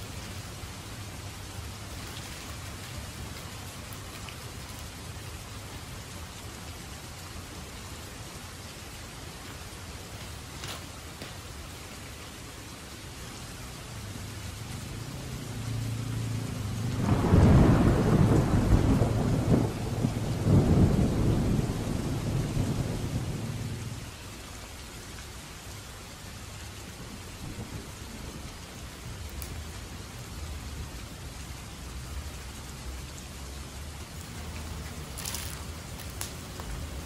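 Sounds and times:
rain on a roof: 0:00.0 - 0:37.0
thunder rumbling: 0:15.6 - 0:24.0.

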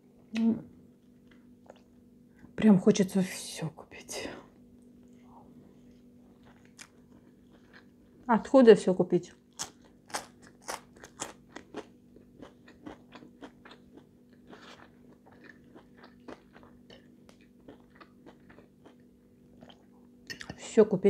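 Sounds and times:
faint steady hum: 0:00.0 - 0:21.0
chewing crunchy fries: 0:00.9 - 0:02.0, 0:05.0 - 0:08.5, 0:09.3 - 0:20.6.

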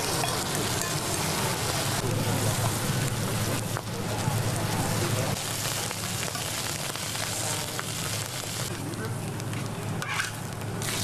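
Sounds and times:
food sizzling on hot surface: 0:00.0 - 0:11.0.

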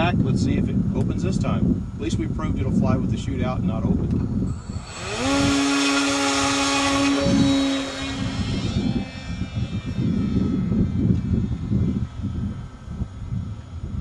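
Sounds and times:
model plane motor whine: 0:04.3 - 0:14.0.

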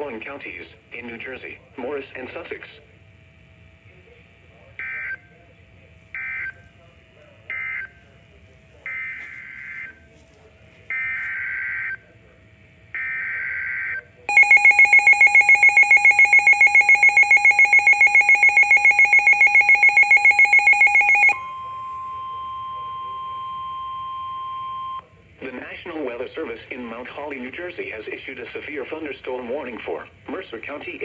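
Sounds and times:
steady warning tone: 0:06.1 - 0:25.1
fast pulsing beeping alarm: 0:07.5 - 0:08.0, 0:08.8 - 0:10.0, 0:10.9 - 0:12.1, 0:13.0 - 0:25.1.

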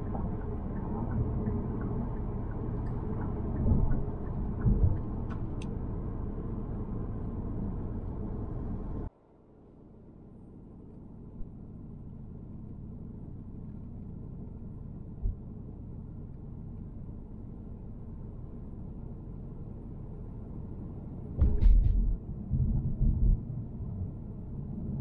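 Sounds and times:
car driving on freeway: 0:00.0 - 0:09.1, 0:10.2 - 0:25.0
thump: 0:21.4 - 0:22.1.

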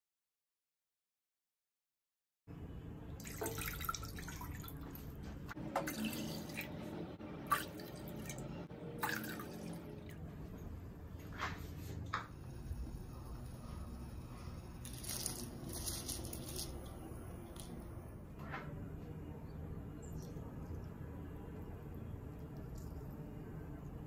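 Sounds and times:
water splashing into metal pot: 0:03.2 - 0:04.8, 0:09.0 - 0:09.8.

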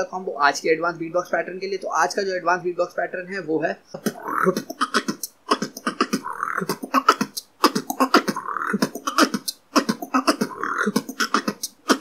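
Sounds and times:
person beatboxing: 0:03.9 - 0:12.0.

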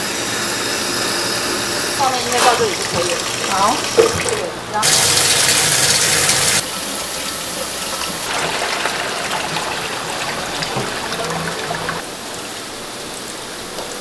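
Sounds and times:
tap water running into a pot: 0:02.0 - 0:12.1.

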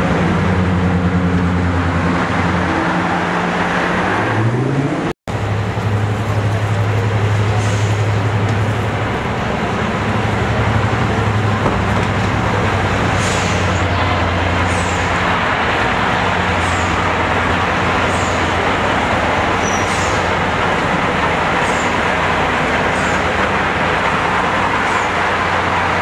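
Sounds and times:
diesel locomotive engine drone: 0:00.0 - 0:26.0
short high squeaks: 0:19.6 - 0:20.2.

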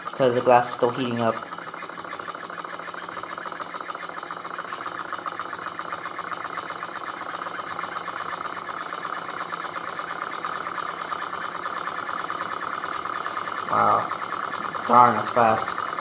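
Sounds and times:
stirling engine mechanical rattle: 0:00.0 - 0:16.0.

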